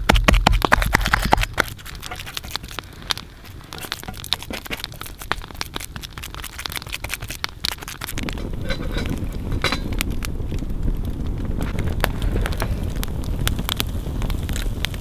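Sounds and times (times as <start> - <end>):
campfire crackling and popping: 0.0 - 15.0.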